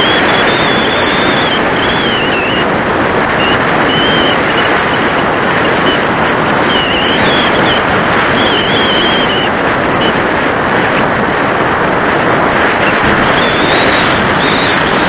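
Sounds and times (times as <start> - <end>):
thin high whistle: 0.0 - 2.7, 3.4 - 4.7, 6.6 - 7.8, 8.4 - 10.2, 13.3 - 14.9
airflow rushing over camera: 0.0 - 15.0.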